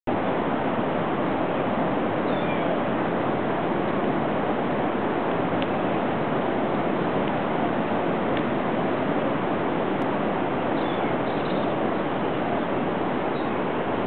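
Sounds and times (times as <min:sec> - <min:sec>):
ocean surf: 0:00.1 - 0:14.0.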